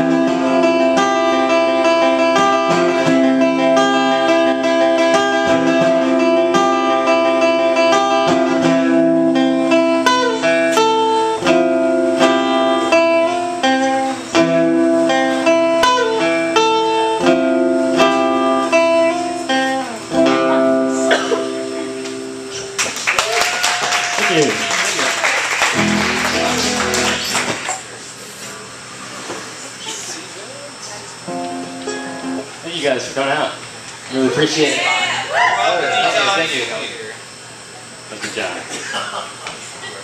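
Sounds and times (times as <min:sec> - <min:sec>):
acoustic guitars strumming: 0:00.0 - 0:23.1, 0:24.2 - 0:30.0, 0:31.2 - 0:32.9.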